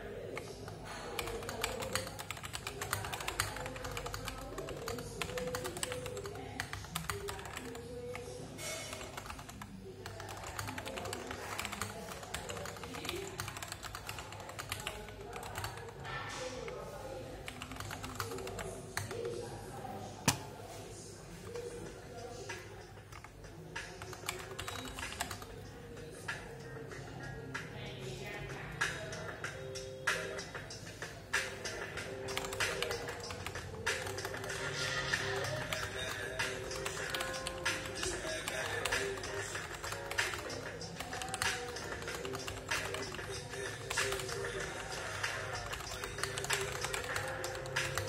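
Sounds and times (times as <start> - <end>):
fast typing on mechanical keyboard: 0.3 - 16.1, 17.4 - 19.3, 22.3 - 25.8, 31.3 - 48.0
background music with voices: 20.8 - 48.0.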